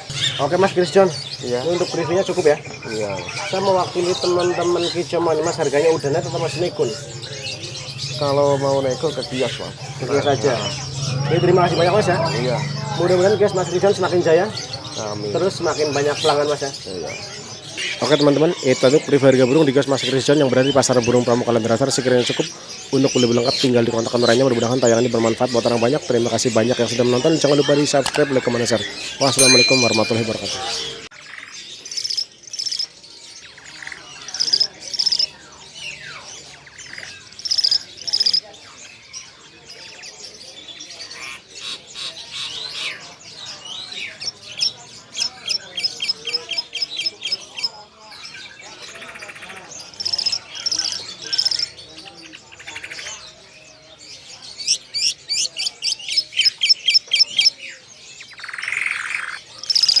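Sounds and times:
sharp down-slurred bird notes: 0.0 - 39.4
songbirds trilling: 0.0 - 60.0.

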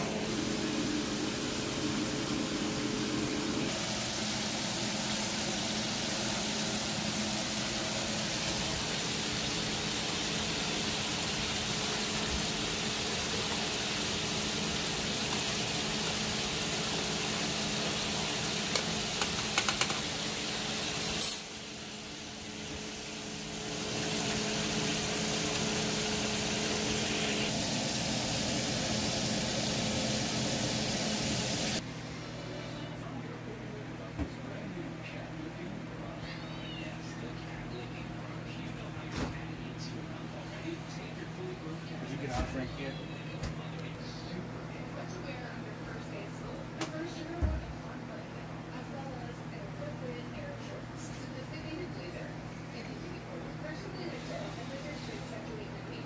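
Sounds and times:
food frying in oil: 3.7 - 31.8.

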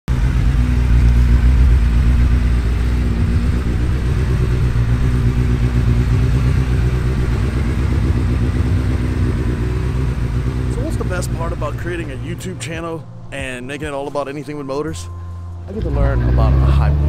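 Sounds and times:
motorcycle engine idling: 0.1 - 13.0.

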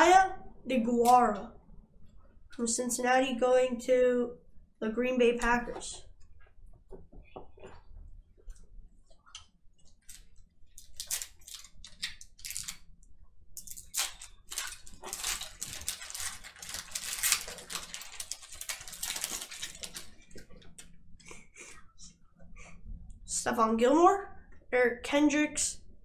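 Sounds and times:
wrapper crinkling while torn open: 10.0 - 12.9, 13.6 - 20.3.

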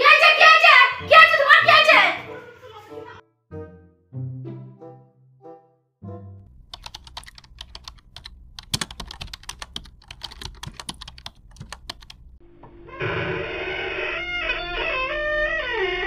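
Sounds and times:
keyboard key clicks: 6.7 - 12.4.

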